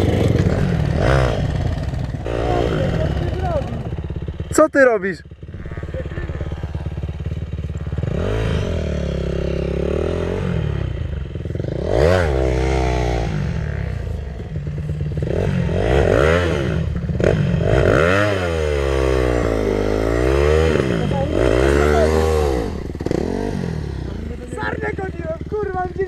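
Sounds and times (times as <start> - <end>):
dirt bike engine idling: 0.0 - 26.0
dirt bike engine revving: 0.0 - 26.0.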